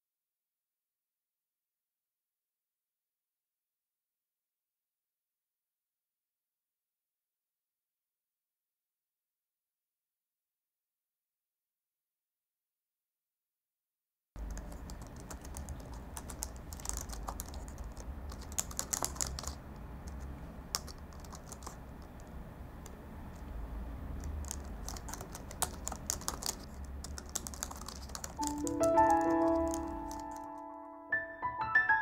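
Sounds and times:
laptop keyboard typing: 0:14.4 - 0:30.8
piano music: 0:28.4 - 0:32.0.

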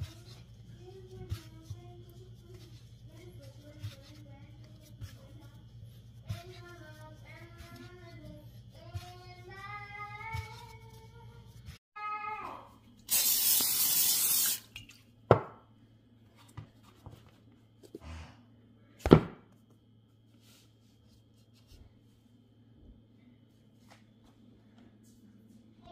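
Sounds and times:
oil spray hissing: 0:13.1 - 0:14.6.

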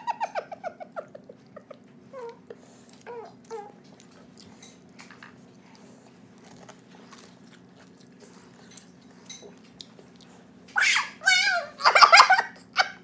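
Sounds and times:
person chewing with mouth clicks: 0:05.5 - 0:10.5.

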